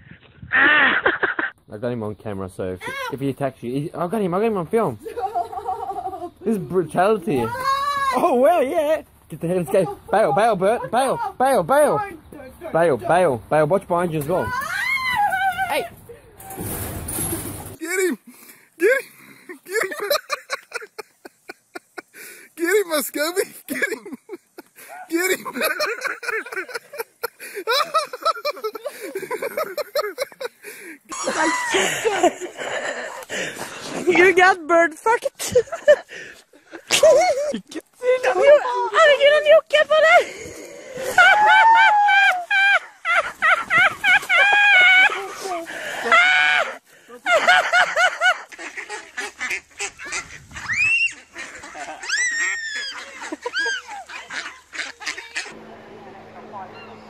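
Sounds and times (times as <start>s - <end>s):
people laughing and calling out: 5.0s - 6.7s, 7.3s - 12.2s, 17.8s - 33.1s, 36.7s - 57.0s
person crying out: 18.8s - 19.1s, 24.9s - 25.7s
ducks quacking: 48.3s - 57.0s
high arching duck cries: 48.6s - 55.6s.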